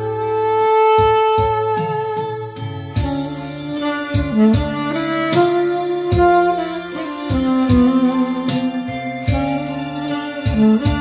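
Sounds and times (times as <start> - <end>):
bass line: 0.0 - 11.0
saxophone playing slow melody: 0.0 - 11.0
steady drum beat: 0.0 - 11.0.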